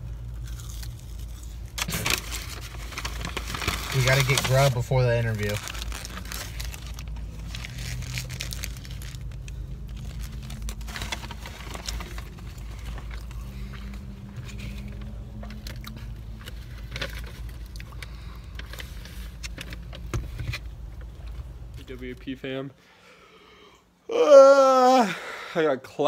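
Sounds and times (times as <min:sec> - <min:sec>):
low hum inside a car: 0:00.0 - 0:25.0
close-up chewing: 0:00.3 - 0:03.8
paper wrappers crinkling: 0:00.5 - 0:20.4.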